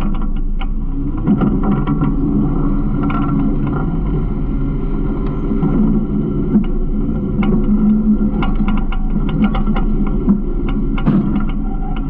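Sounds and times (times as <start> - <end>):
garbage truck engine droning: 0.0 - 12.0
light rattles and clicks: 6.5 - 12.0.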